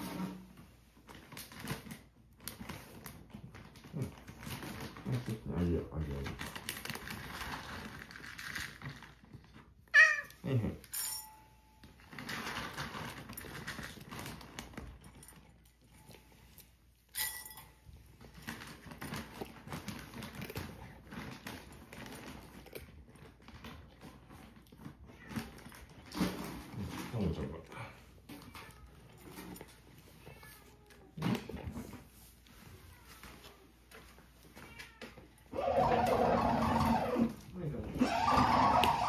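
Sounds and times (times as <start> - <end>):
cat crunching dry food: 1.1 - 10.9, 11.8 - 17.1, 17.9 - 29.9
cat meowing: 9.9 - 10.5.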